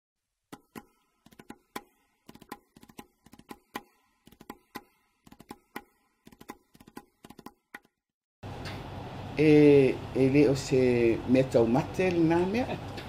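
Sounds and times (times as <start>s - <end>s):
sharp typing-like clicks: 0.6s - 7.9s.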